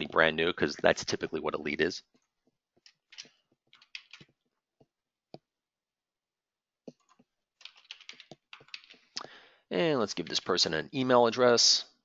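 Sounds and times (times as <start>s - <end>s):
faint computer keyboard typing: 6.9s - 9.1s.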